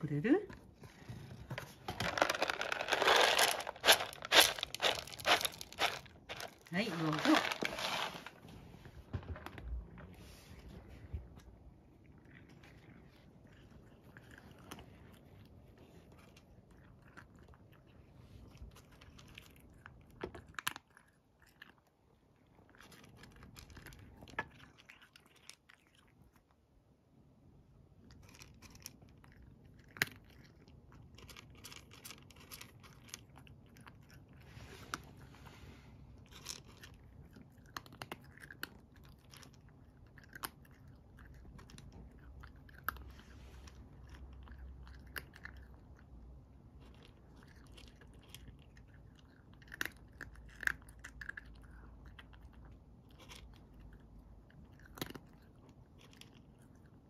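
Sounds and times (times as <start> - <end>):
cat crunching dry kibble: 0.1 - 26.6, 27.8 - 57.0.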